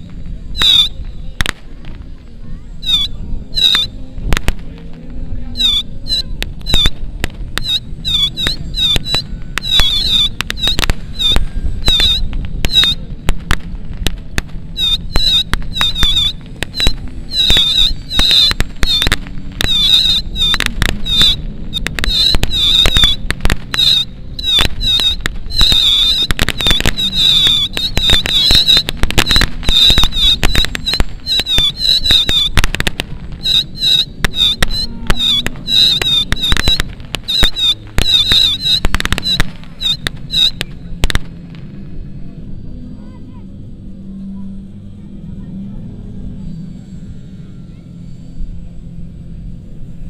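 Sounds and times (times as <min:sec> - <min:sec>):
high wavering chirp: 0:00.0 - 0:01.4, 0:02.5 - 0:04.3, 0:05.3 - 0:13.2, 0:14.6 - 0:43.1
pyrotechnic charges popping: 0:00.0 - 0:42.3.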